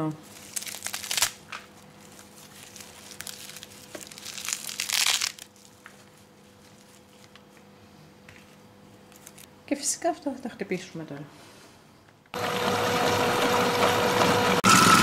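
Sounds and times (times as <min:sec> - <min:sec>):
parsley rustling and crinkling: 0:00.2 - 0:07.7, 0:08.3 - 0:09.5.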